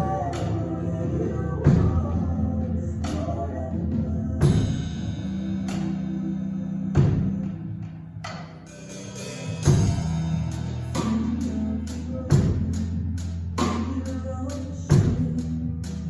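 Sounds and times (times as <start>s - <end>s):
drum kit playing: 0.0s - 16.0s
worship band backing track: 0.0s - 16.0s
cymbal crashes: 8.7s - 11.2s.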